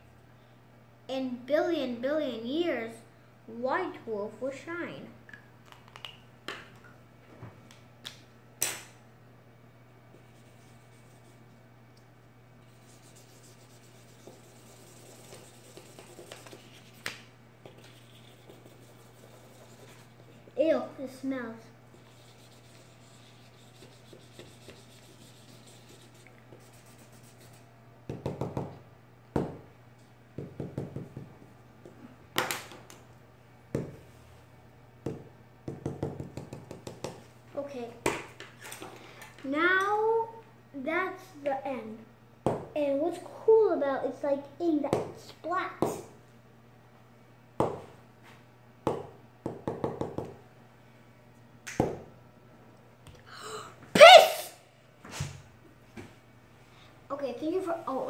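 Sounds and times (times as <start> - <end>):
marker scribbling on paper: 12.7 - 17.1, 17.8 - 20.2, 21.9 - 27.6
marker tapping on paper: 28.1 - 28.7, 35.0 - 37.2, 48.9 - 50.4.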